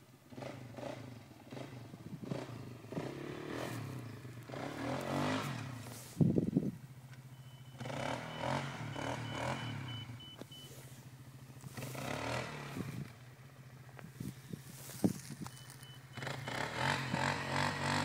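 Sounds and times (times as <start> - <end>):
distant atv engine revving: 0.0 - 18.0.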